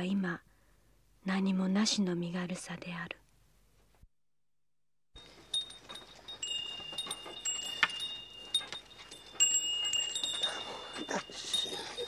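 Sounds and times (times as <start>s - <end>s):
small bells jingling: 5.2s - 12.0s.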